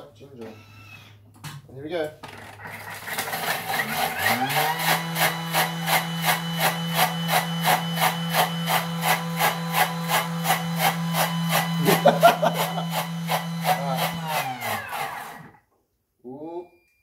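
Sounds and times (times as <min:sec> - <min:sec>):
food processor motor hum: 0:02.6 - 0:15.6.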